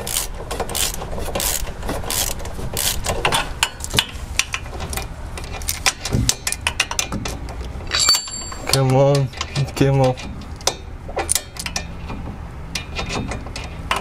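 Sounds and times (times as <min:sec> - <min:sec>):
bolt threads scraping: 0:07.9 - 0:09.6.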